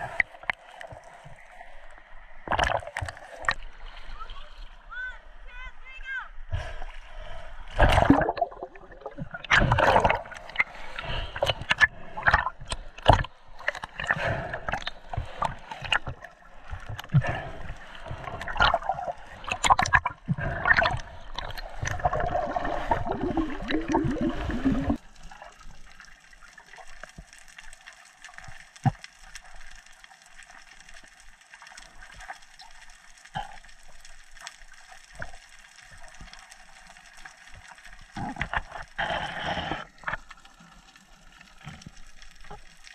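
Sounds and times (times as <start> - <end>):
steady underwater hiss: 0.0 - 2.5, 10.2 - 12.3, 30.8 - 42.9
underwater bubbles and churning: 0.0 - 5.4, 6.3 - 42.9
underwater clicks and knocks: 2.4 - 3.6, 11.4 - 14.1.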